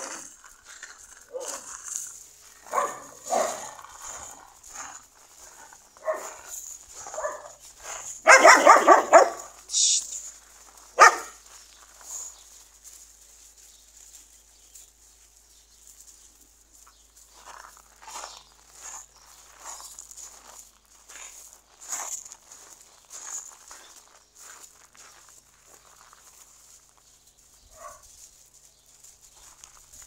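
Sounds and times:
dogs barking: 1.3s - 1.7s, 2.6s - 9.6s, 11.0s - 11.4s, 27.7s - 28.1s.

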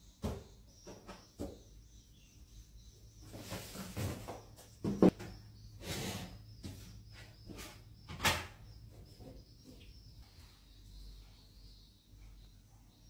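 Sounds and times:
knocks and scrapes on wooden cabinet: 3.2s - 9.9s.

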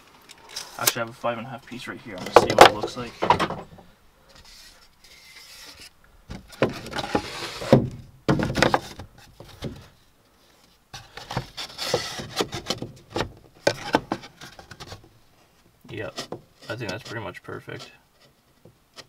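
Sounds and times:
wood knocking and rubbing on wood: 2.1s - 9.9s, 11.0s - 15.2s, 15.9s - 19.0s.

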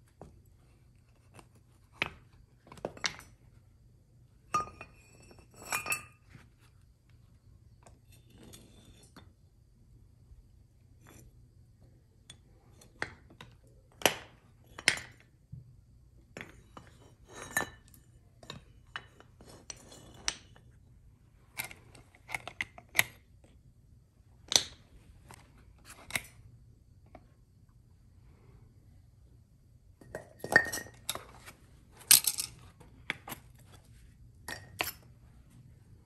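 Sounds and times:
metal ingots clinking: 32.1s - 32.6s.

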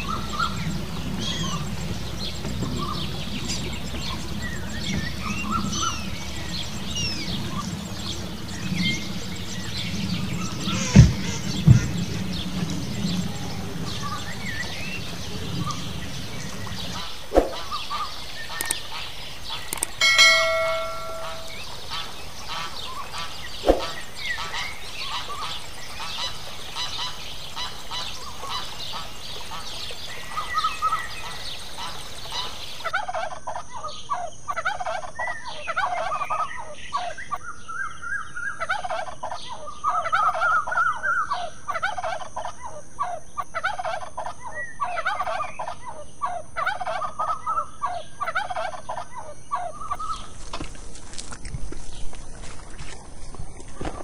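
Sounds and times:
birds chirping: 0.0s - 32.9s, 44.4s - 54.0s
turkey gobbling: 41.7s - 50.2s.

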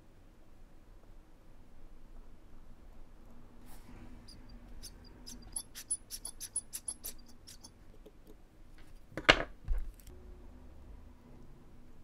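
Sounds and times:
metallic ticks of watchmaking tools: 4.3s - 7.8s.

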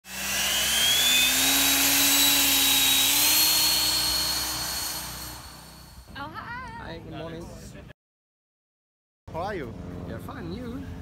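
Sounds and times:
rushing hiss with rising whine: 0.0s - 6.1s.

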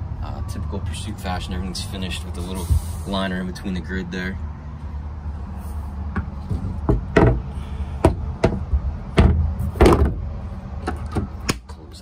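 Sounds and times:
steady low rumble: 0.0s - 12.0s
hatch knocking and thumping: 6.1s - 10.2s.

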